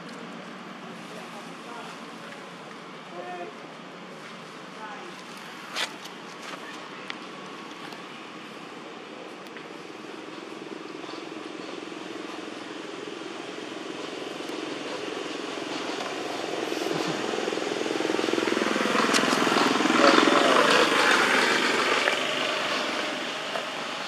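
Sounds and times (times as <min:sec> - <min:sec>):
passing engine drone: 0:15.2 - 0:24.0.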